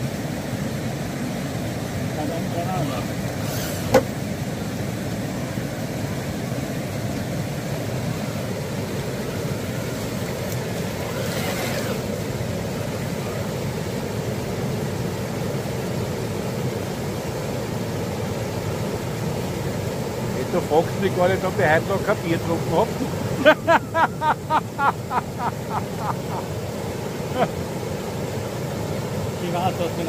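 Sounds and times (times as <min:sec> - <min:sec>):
creek and waterfall rushing: 0:00.0 - 0:30.0.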